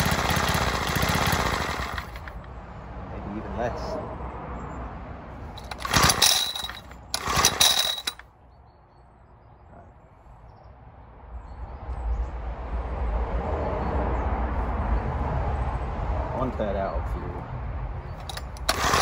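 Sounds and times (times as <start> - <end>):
engine pull-starter whirring: 0.0 - 2.5, 5.5 - 8.2, 18.2 - 19.0.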